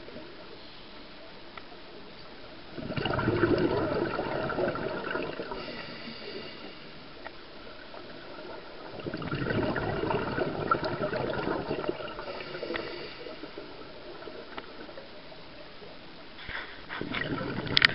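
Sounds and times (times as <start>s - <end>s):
underwater exhaled bubbles gushing: 2.7s - 16.1s, 17.0s - 17.9s
underwater hiss: 3.0s - 15.1s.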